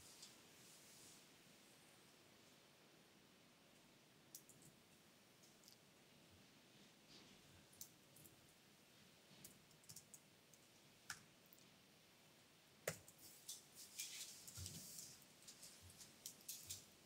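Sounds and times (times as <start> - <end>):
laptop keyboard typing: 9.4 - 11.3.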